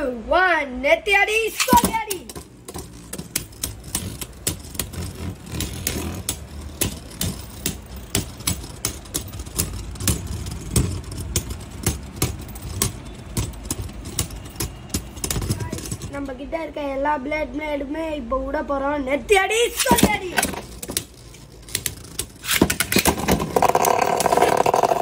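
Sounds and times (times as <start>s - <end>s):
spinning tops whirring: 1.5s - 16.1s, 19.8s - 25.0s
spinning tops clacking: 1.5s - 16.2s, 19.8s - 25.0s.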